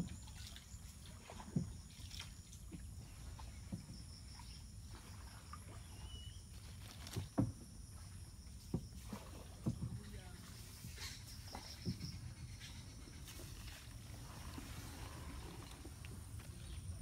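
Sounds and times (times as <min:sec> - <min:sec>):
paddle knocks and splashes: 0:00.0 - 0:12.4.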